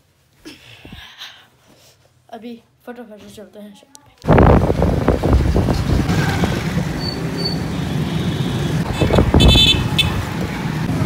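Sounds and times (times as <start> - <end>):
street traffic: 3.9 - 11.0
vehicle horn toot: 7.5 - 10.3.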